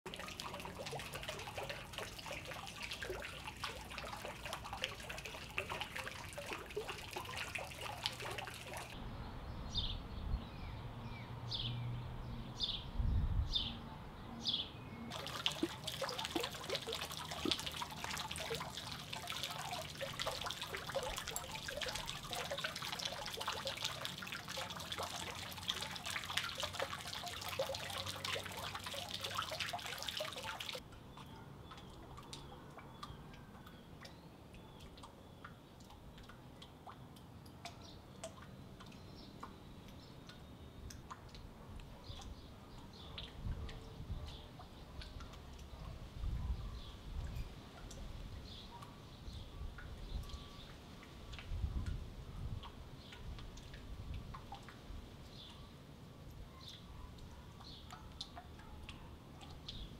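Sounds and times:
fountain water splashing: 0.1s - 9.0s, 15.1s - 30.8s.

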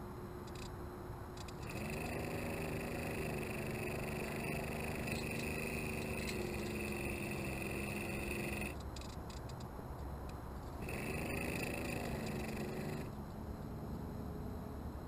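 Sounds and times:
motor humming and whining: 1.4s - 8.8s, 10.8s - 14.1s.

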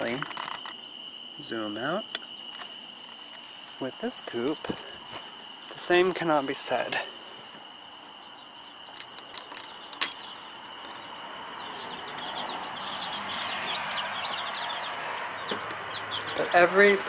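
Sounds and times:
crickets trilling: 0.0s - 17.0s
chicks peeping: 10.3s - 17.0s.

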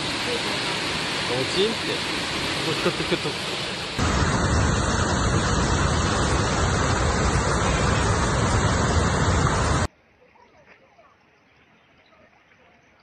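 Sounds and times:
floodwater rushing: 0.0s - 9.9s.

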